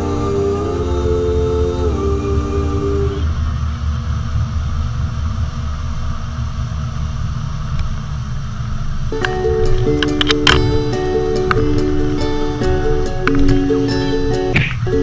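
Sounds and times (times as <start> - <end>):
boat engine rumble: 0.0 - 15.0
background music: 9.1 - 15.0.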